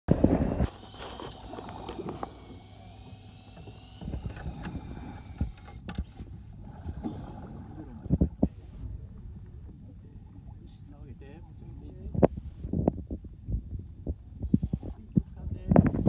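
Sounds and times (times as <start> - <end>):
water against boat hull: 0.1 - 16.0
knocks and thumps on boat: 14.8 - 16.0.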